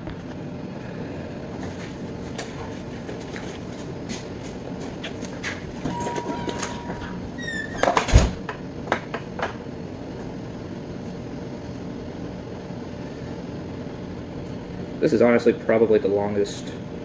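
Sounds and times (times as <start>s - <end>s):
kitchen ventilation hum: 0.0s - 17.0s.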